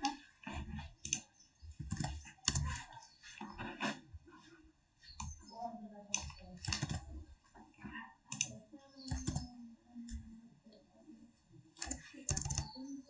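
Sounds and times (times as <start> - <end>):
computer mouse clicks: 0.0 - 4.0, 5.0 - 5.5, 6.1 - 7.2, 8.3 - 10.8, 11.7 - 12.8
keyboard keystrokes: 1.0 - 1.2, 1.8 - 2.8, 6.1 - 7.1, 8.3 - 8.5, 9.1 - 9.5, 11.8 - 12.8.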